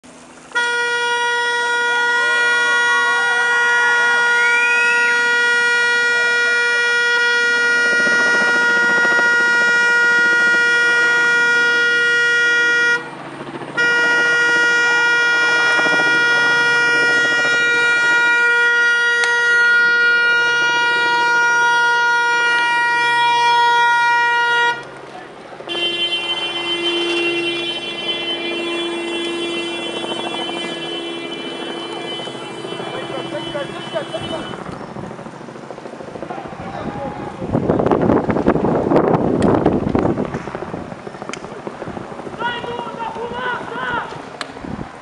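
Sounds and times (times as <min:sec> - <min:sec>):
car horn blaring continuously: 0:00.5 - 0:25.0, 0:25.6 - 0:34.7.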